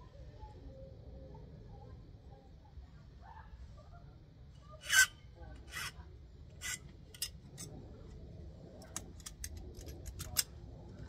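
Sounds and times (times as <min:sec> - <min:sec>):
file rasping on a key: 0:04.8 - 0:05.1.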